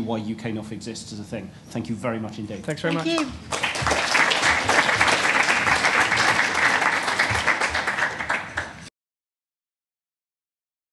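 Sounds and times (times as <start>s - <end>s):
audience applauding: 2.9s - 8.9s.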